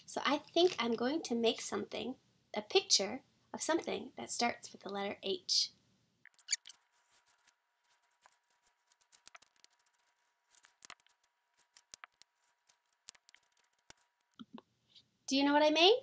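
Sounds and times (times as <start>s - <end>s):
markers scratching on paper: 6.3s - 14.4s
paper being handled: 6.6s - 14.4s.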